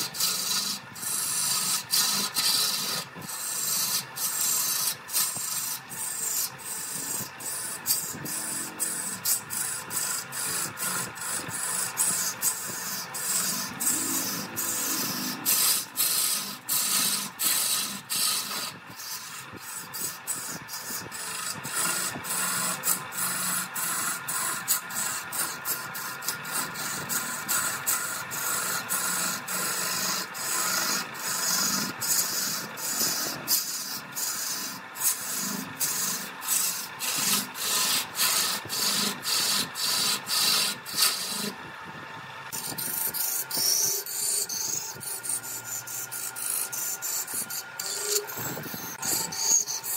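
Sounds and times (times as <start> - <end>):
lathe tool scraping wood: 0.0 - 49.9.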